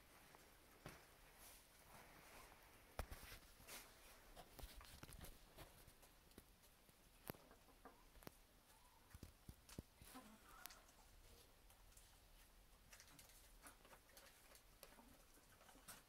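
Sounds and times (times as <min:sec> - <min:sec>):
hens clucking: 0:07.3 - 0:08.8.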